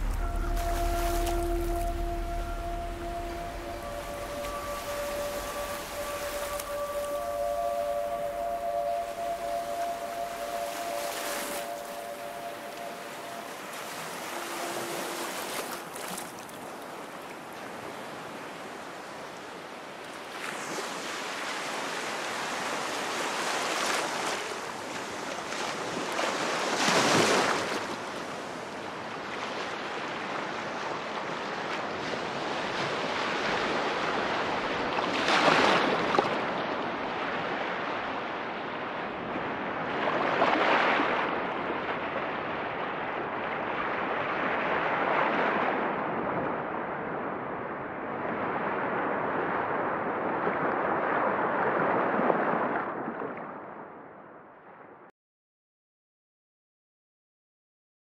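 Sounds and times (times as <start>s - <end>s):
ocean surf rushing: 0.0s - 17.2s
waves breaking: 0.0s - 19.3s, 19.9s - 46.8s.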